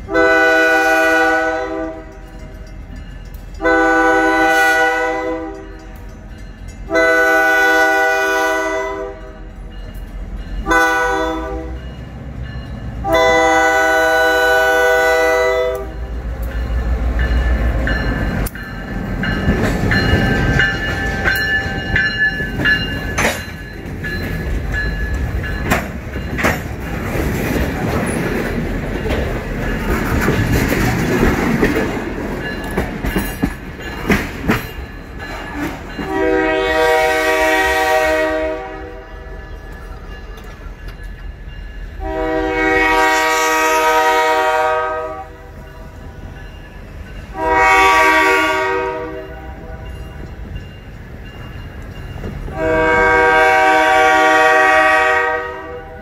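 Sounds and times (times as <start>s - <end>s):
locomotive chime horn blasts: 0.0s - 2.7s, 3.6s - 6.0s, 6.8s - 9.6s, 10.6s - 12.0s, 13.0s - 16.2s, 35.9s - 40.2s, 42.0s - 46.1s, 47.2s - 50.2s, 52.5s - 56.0s
train wheels clattering on rails: 15.7s - 38.0s, 45.5s - 55.2s.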